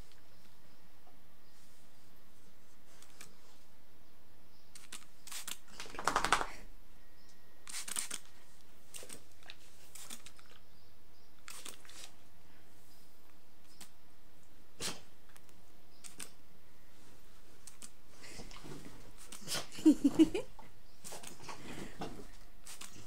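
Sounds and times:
spray bottle squirting water: 7.7 - 8.2, 22.6 - 23.0.

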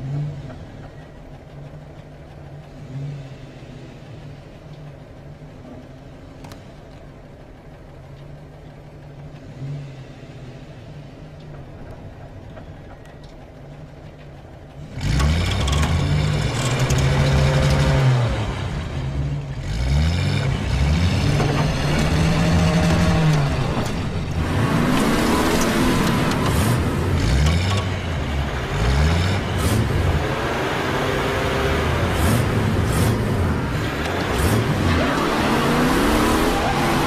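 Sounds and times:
car engine idling: 0.0 - 37.0
engine revving: 14.8 - 37.0.

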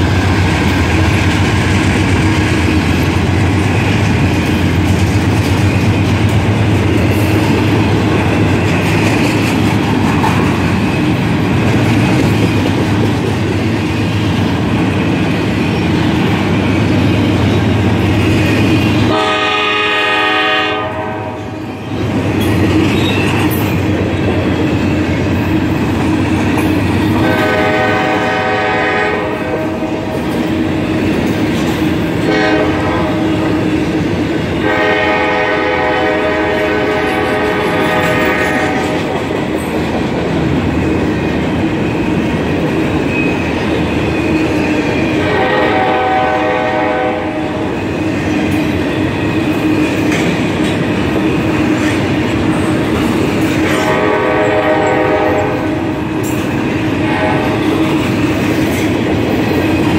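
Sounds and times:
freight train rumbling: 0.0 - 59.9
wheels clicking over rail joints: 0.6 - 13.8
locomotive air horn: 19.0 - 21.6, 27.1 - 30.2, 32.2 - 33.6, 34.6 - 39.1, 45.2 - 47.6, 53.6 - 55.9, 57.0 - 57.9.

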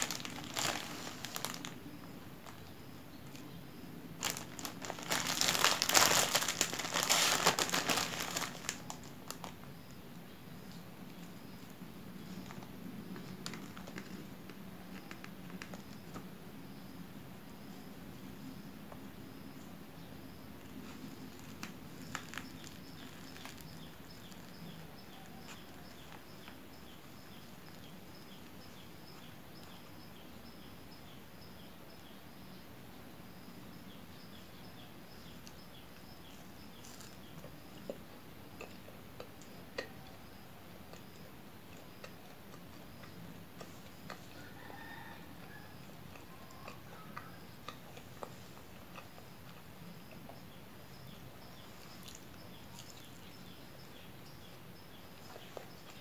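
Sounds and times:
plastic bag crinkling: 0.0 - 2.6, 4.2 - 9.6, 21.3 - 26.2
faint handling sounds: 0.0 - 3.5
regular chirping: 17.6 - 32.6.

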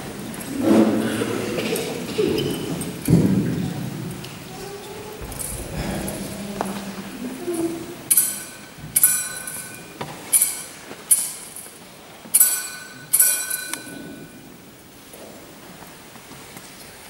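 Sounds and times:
metal censer clanking on chains: 8.1 - 11.7, 12.3 - 14.4.

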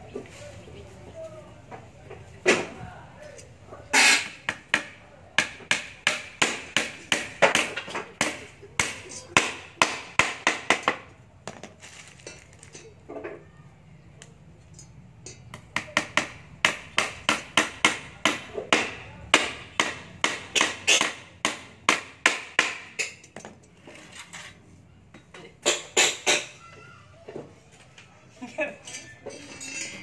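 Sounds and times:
hammer striking wood: 4.0 - 11.6, 15.5 - 23.0.

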